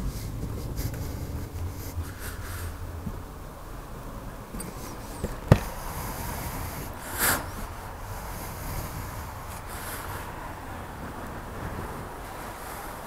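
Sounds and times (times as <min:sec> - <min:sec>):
rustling swish: 0:00.0 - 0:02.9
low steady rumble: 0:00.0 - 0:13.0
sharp knock: 0:05.2 - 0:05.8.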